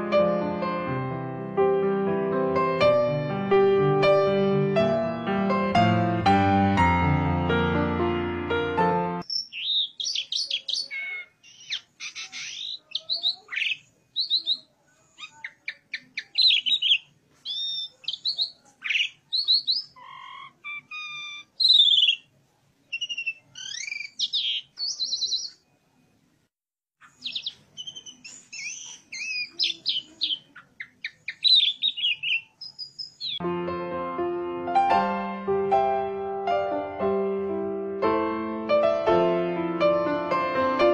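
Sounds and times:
starling singing: 9.2 - 22.3, 22.9 - 25.7, 27.0 - 33.4.

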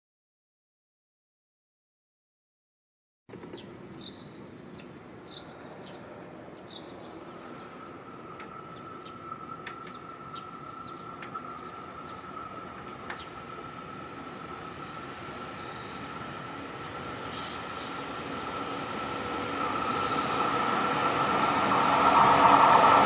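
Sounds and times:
birds chirping: 3.3 - 23.0
distant freight train rumble: 3.5 - 23.0
steady high whine: 6.1 - 23.0.

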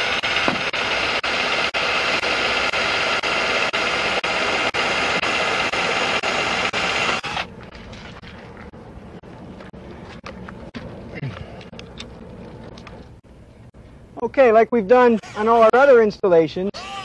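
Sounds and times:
power drill whirring and clicking: 0.0 - 7.5, 16.8 - 17.0.

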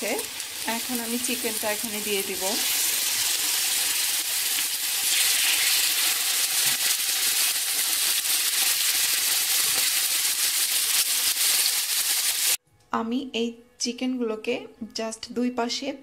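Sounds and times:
chicken sizzling in a frying pan: 0.0 - 12.6.

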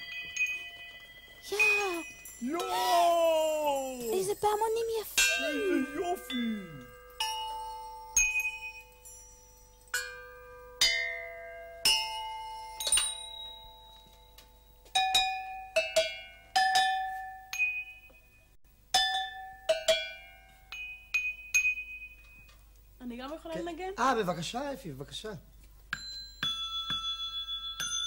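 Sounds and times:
metal bells struck with stick: 5.2 - 18.3, 18.9 - 22.3, 25.9 - 28.0.

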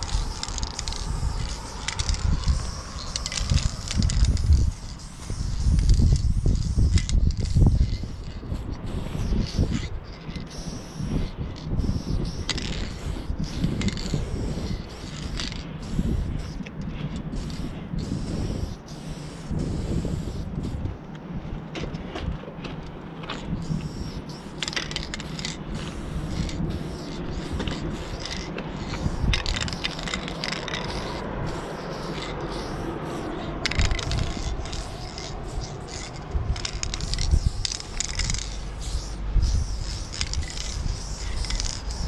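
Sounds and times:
low rumble: 0.0 - 10.4, 25.8 - 42.0
spray paint can hissing: 0.0 - 20.9, 23.4 - 42.0.

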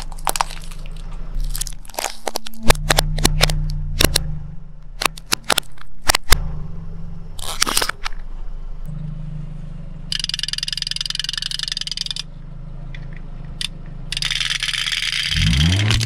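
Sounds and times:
sharp plastic cracks: 0.0 - 6.4, 13.6 - 16.0
car engine idling: 0.0 - 16.0
chattering-teeth toy clattering: 10.1 - 12.3, 14.1 - 16.0.

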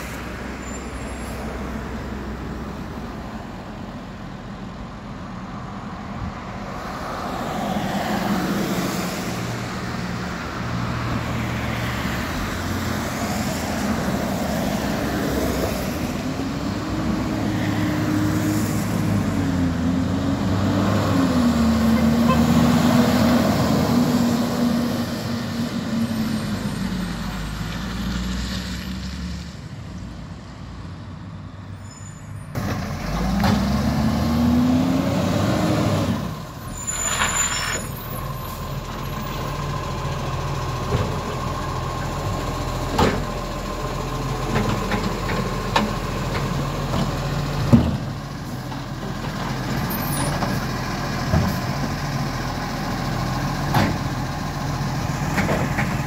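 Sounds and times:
garbage truck engine revving: 32.6 - 36.4.

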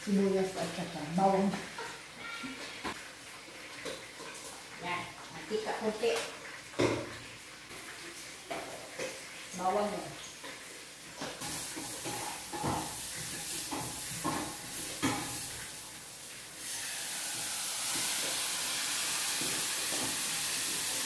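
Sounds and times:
onions sizzling in hot oil: 0.0 - 21.0
utensil knocking on frying pan: 11.6 - 15.4.

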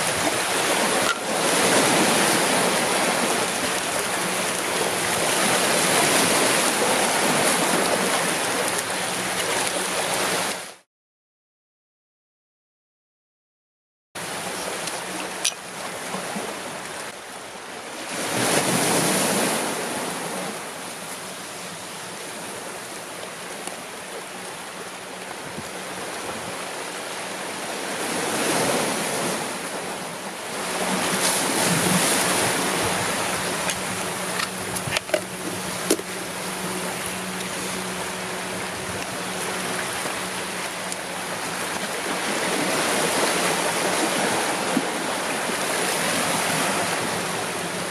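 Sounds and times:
waves washing against rocks: 0.0 - 10.8, 17.8 - 24.6, 25.2 - 47.9.

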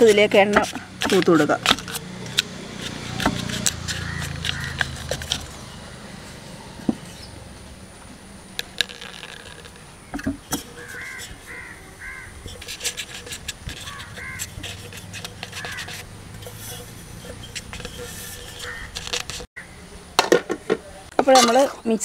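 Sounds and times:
scraping clicks: 0.0 - 5.6, 12.4 - 19.5
fingers rubbing paper: 2.7 - 5.6, 10.8 - 19.5
crows cawing: 3.9 - 5.0, 10.8 - 12.4, 13.8 - 14.6, 15.4 - 16.0, 18.6 - 19.0.

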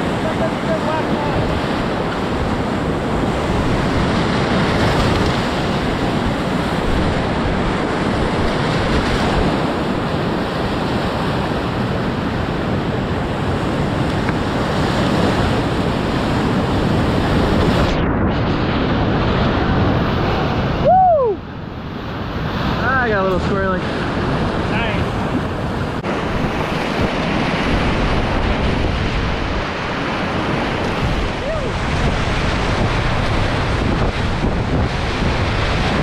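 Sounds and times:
whitewater rapids rushing: 0.0 - 7.5, 25.9 - 36.0
water breaking over bow: 0.0 - 20.8, 21.7 - 36.0.

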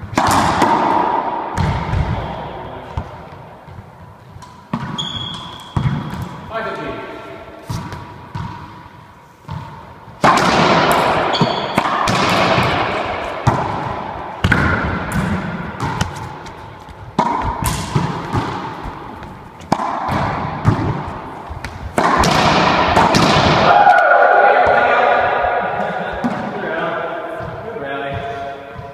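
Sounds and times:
ball cracking off racquets and walls: 0.0 - 6.4, 9.5 - 23.8
ball bouncing on floor: 13.4 - 23.5.

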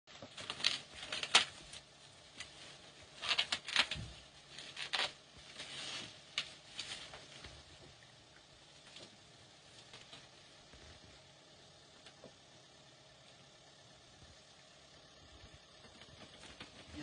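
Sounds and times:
plastic rustling and crinkling: 0.1 - 11.2, 15.5 - 17.0.

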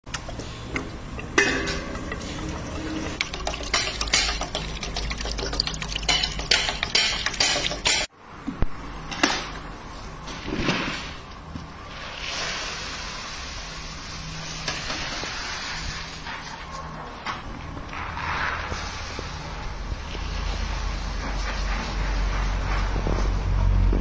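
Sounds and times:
mill rumbling: 0.0 - 8.1
oil running into pot: 0.1 - 8.1
metal clinking against steel pot: 0.7 - 8.1.

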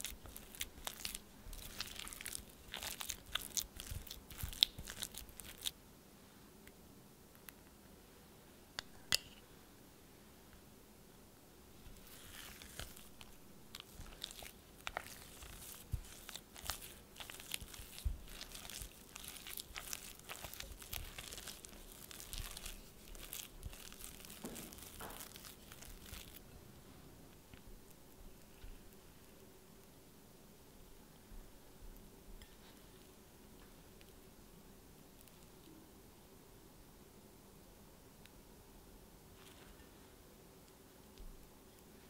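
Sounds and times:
spatula squishing and scraping: 0.0 - 5.7, 11.8 - 26.4.

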